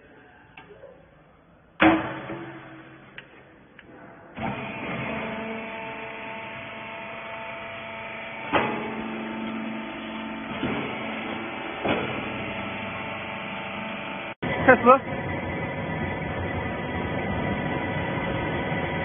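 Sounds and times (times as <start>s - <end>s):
baler lid slamming shut: 1.8s - 2.9s, 10.6s - 12.5s
hydraulic pump motor humming: 4.4s - 19.0s.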